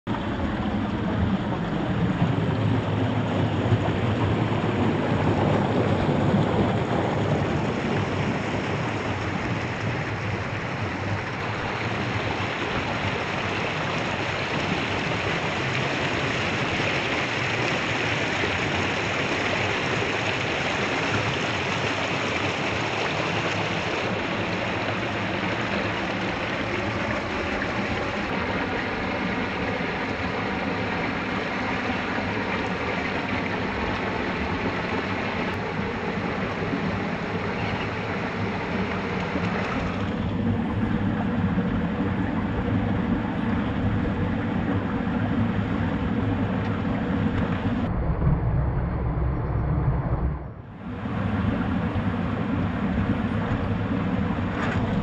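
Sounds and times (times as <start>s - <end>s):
creek water running over stones: 6.7s - 40.3s.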